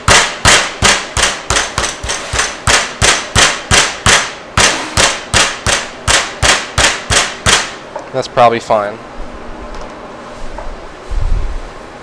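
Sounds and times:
meat mallet pounding on cutting board: 0:00.0 - 0:07.8.

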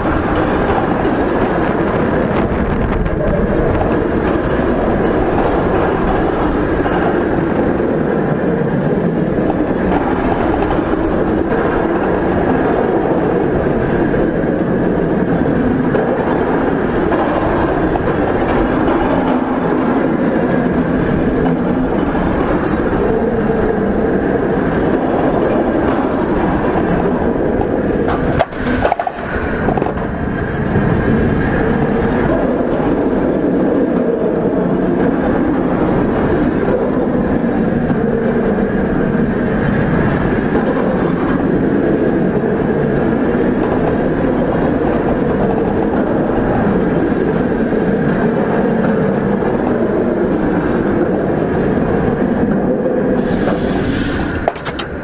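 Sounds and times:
roller coaster clatter: 0:00.0 - 0:55.0
roller coaster rumbling on track: 0:00.0 - 0:55.0.

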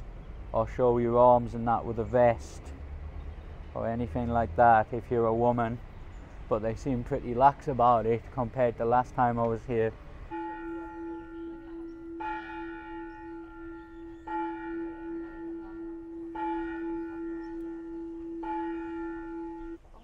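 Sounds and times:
bell ringing: 0:10.3 - 0:19.8
steady hum on one note: 0:10.3 - 0:19.8.

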